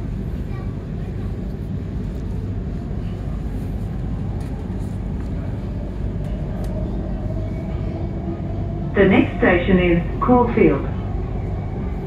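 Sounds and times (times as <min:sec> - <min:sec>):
train wheels rumbling: 0:00.0 - 0:12.0
faint clicks: 0:06.2 - 0:06.8.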